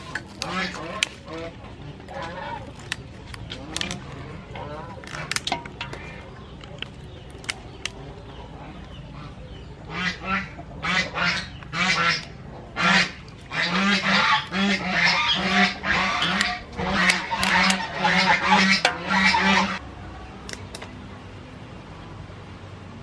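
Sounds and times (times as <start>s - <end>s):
geese honking: 0.0s - 3.0s, 9.1s - 19.8s.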